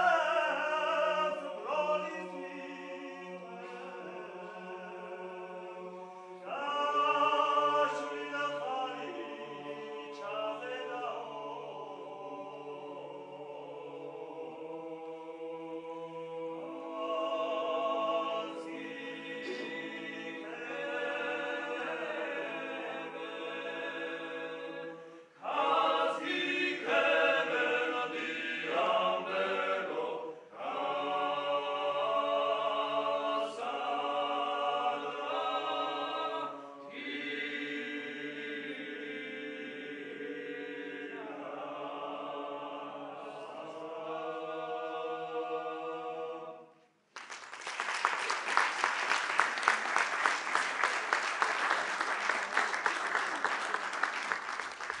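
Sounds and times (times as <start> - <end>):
men singing unaccompanied: 0.0 - 46.6
audience applauding: 47.1 - 55.0.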